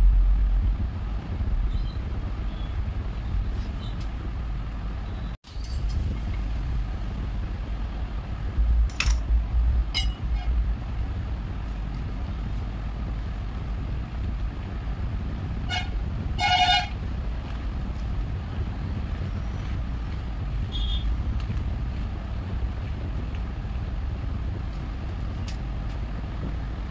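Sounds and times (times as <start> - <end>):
low background rumble: 0.0 - 26.9
short horn toots: 15.7 - 17.0, 20.7 - 21.1.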